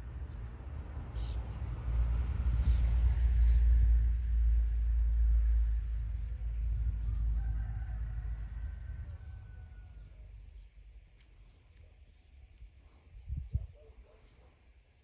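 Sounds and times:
wind rumble on microphone: 0.0 - 10.5, 12.4 - 14.0
faint rooster crowing: 6.8 - 10.5.

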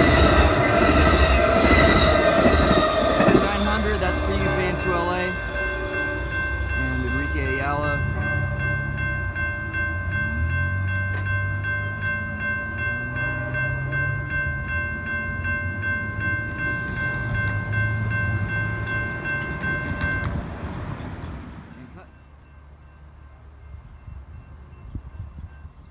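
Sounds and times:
train horn: 0.0 - 7.0
low rumble of train: 0.0 - 25.9.

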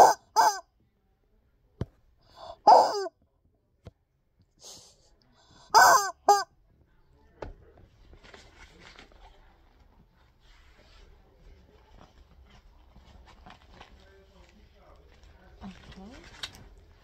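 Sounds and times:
rubber chicken squawking: 0.0 - 0.6, 2.4 - 3.1, 5.7 - 6.5.

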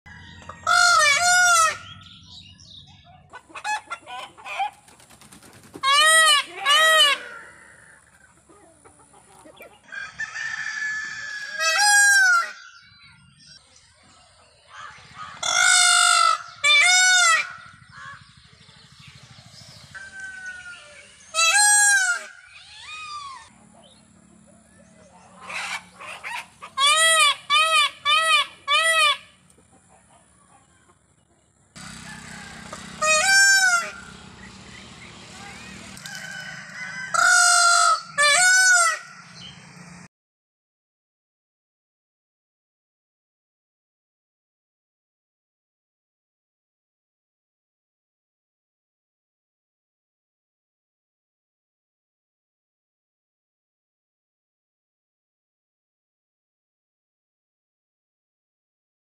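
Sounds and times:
peacock calling: 0.1 - 40.1.

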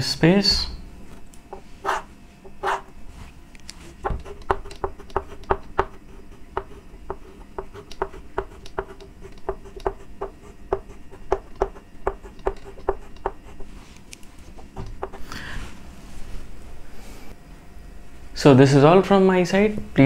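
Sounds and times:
chalk tapping and scraping on board: 1.5 - 2.9, 3.7 - 13.8, 14.4 - 15.2.

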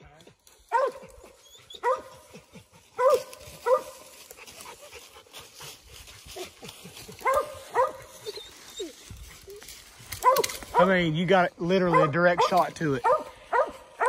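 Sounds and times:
dog barking: 0.7 - 4.2, 7.0 - 8.4, 10.2 - 11.0, 11.8 - 14.0.

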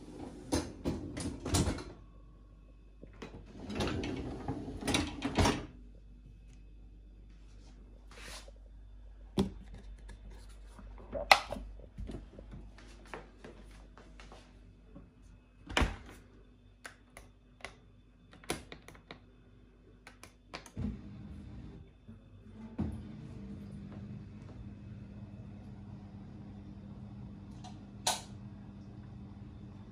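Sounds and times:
dishwasher humming: 0.0 - 2.1, 3.0 - 5.8, 20.5 - 29.9.

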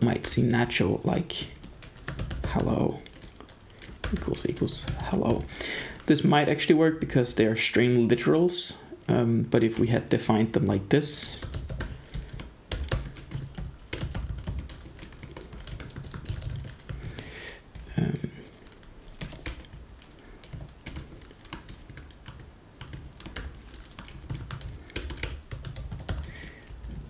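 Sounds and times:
keyboard typing clicks: 17.8 - 27.0.

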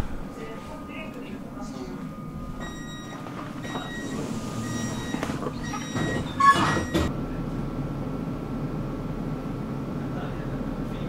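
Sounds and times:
tram running noise: 0.0 - 11.0
short warning beeps: 0.8 - 7.1.

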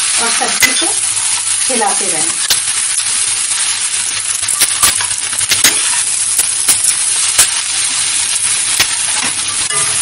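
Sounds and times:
potatoes sizzling in a pan: 0.0 - 10.0
metal spatula scraping a pan: 7.5 - 10.0.

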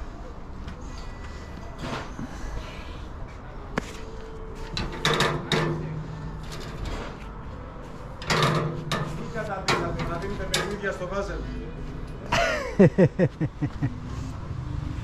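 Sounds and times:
scrap metal knocking and clunking: 4.6 - 11.1.

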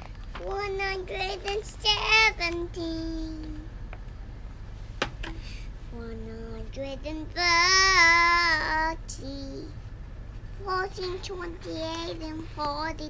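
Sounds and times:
girl singing: 0.4 - 3.8, 5.9 - 9.8, 10.6 - 13.0.

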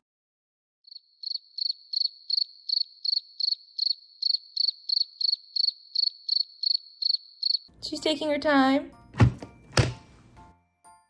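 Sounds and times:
cricket chirping: 0.9 - 7.7.

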